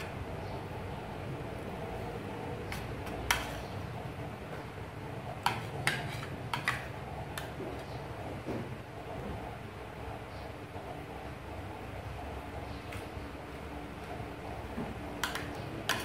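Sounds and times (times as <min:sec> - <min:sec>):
steady low hum: 0:00.0 - 0:16.0
fork scraping a ceramic plate: 0:02.7 - 0:03.8, 0:05.4 - 0:07.5.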